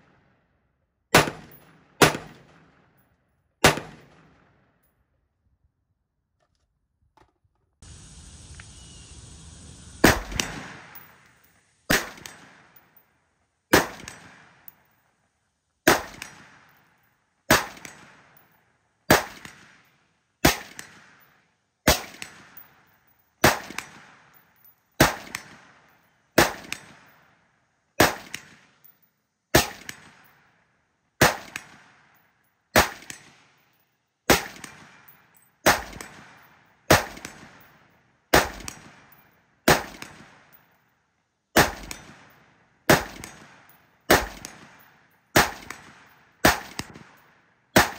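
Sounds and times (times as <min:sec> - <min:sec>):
rifle single shots: 0:01.1 - 0:02.8, 0:03.6 - 0:04.5, 0:10.0 - 0:12.8, 0:13.7 - 0:14.7, 0:15.8 - 0:16.7, 0:17.5 - 0:18.2, 0:19.1 - 0:19.8, 0:20.4 - 0:21.2, 0:21.9 - 0:22.6, 0:23.4 - 0:24.2, 0:25.0 - 0:25.8, 0:26.4 - 0:27.1, 0:28.0 - 0:28.7, 0:29.5 - 0:30.2, 0:31.2 - 0:32.0, 0:32.8 - 0:33.5, 0:34.3 - 0:37.6, 0:38.3 - 0:40.5, 0:41.6 - 0:44.8, 0:45.4 - 0:47.2.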